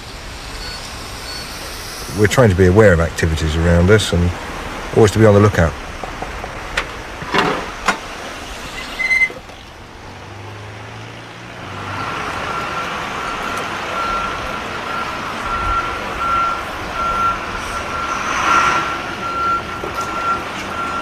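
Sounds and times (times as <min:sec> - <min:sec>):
vehicle reversing alarm beeping: 0:00.0 - 0:04.1, 0:11.8 - 0:21.0
traffic noise: 0:00.0 - 0:21.0.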